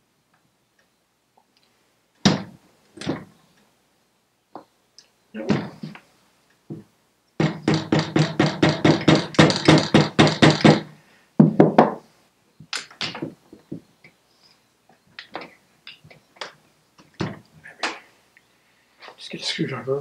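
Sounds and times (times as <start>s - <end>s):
hammer tapping on metal: 7.4s - 10.9s.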